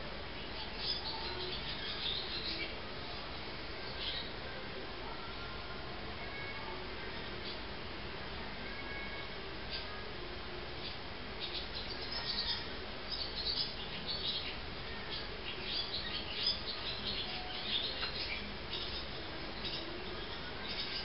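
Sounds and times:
bird chicks twittering: 0:10.8 - 0:21.0.

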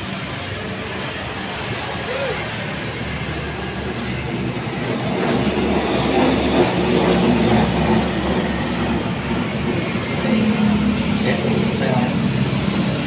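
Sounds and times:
steady rumbling with low hum: 0:02.8 - 0:13.0.

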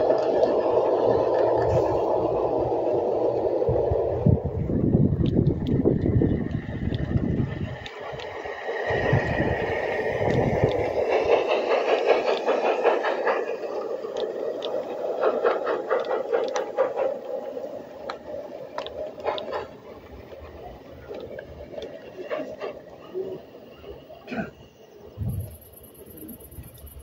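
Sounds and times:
model train rumbling: 0:00.0 - 0:27.0
wheels clicking on rails: 0:00.0 - 0:27.0.

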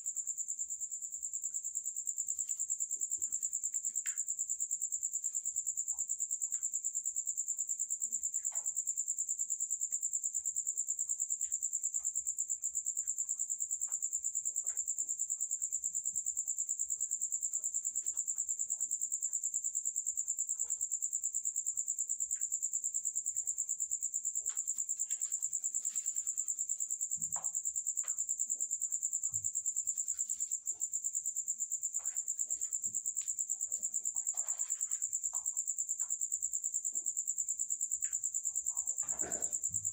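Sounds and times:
crickets trilling: 0:00.1 - 0:39.9.

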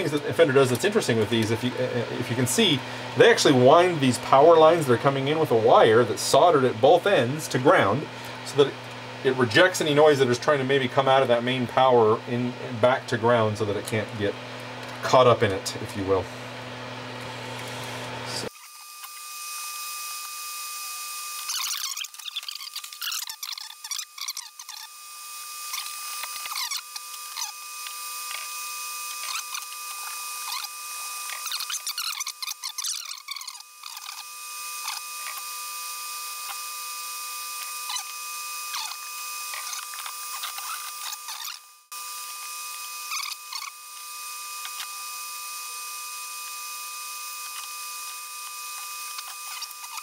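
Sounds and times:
fan whirring hiss: 0:00.0 - 0:18.5
tools squeaking on metal: 0:21.4 - 0:24.9, 0:25.7 - 0:27.6, 0:29.2 - 0:35.4, 0:37.8 - 0:41.6, 0:43.1 - 0:43.8.

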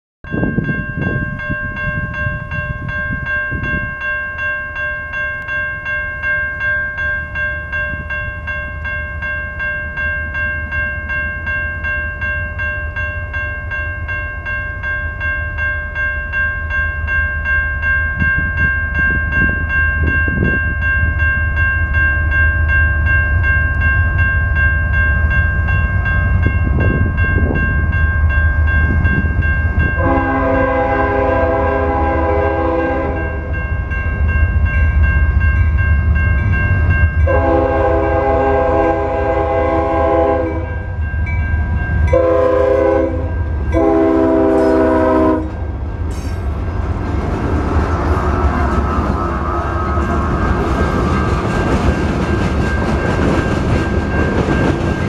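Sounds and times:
railroad crossing bell ringing: 0:00.2 - 0:55.0
train rumbling: 0:07.0 - 0:55.0.

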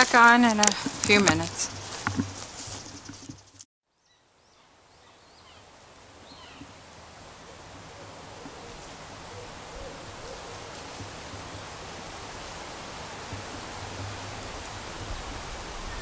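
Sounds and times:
wind rushing and rustling: 0:00.0 - 0:03.6, 0:08.2 - 0:16.0.

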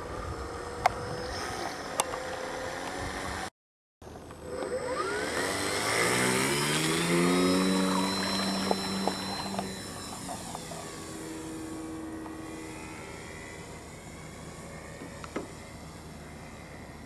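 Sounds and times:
model plane motor whining: 0:04.2 - 0:17.0.

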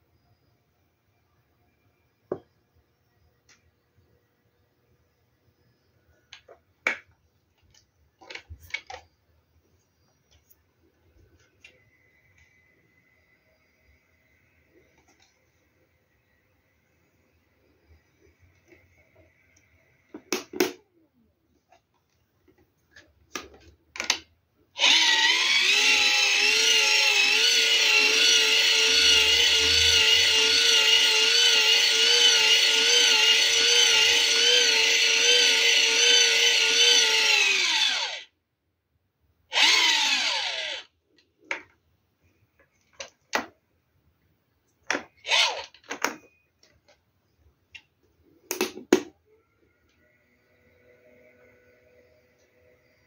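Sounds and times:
hand-crank generator whining: 0:24.8 - 0:38.3, 0:39.5 - 0:40.9, 0:45.0 - 0:46.3.

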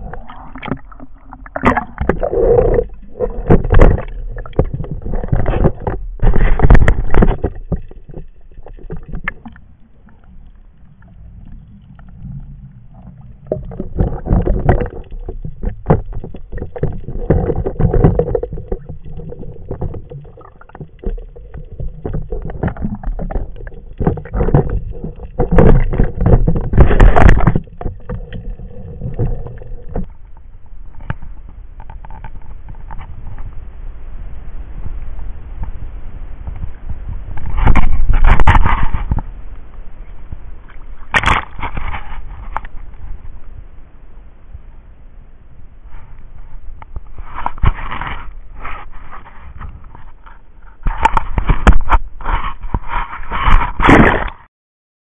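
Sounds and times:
water sloshing and splashing: 0:00.0 - 0:33.6.

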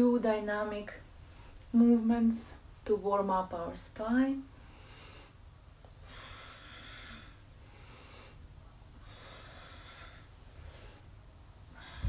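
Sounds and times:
woman breathing deeply: 0:04.5 - 0:12.0.

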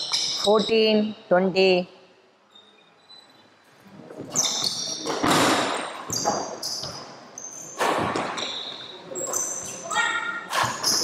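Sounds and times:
sneakers squeaking on wooden floor: 0:02.5 - 0:11.0.

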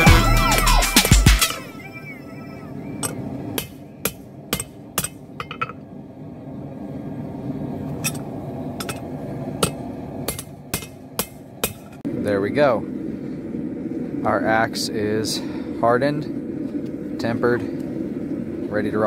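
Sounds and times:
steady low rumble: 0:01.8 - 0:19.0
hammer striking steel on anvil: 0:03.0 - 0:05.8, 0:09.6 - 0:12.0.

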